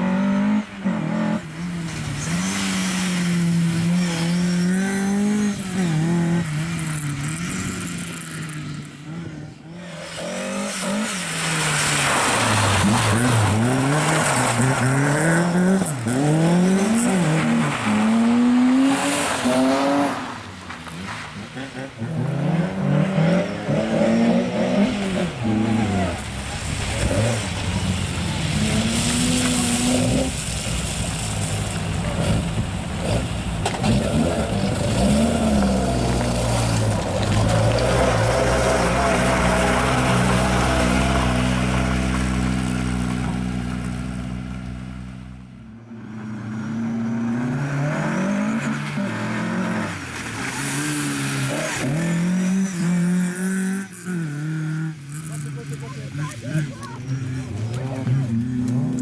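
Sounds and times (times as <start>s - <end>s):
car engine revving: 0.0s - 59.0s.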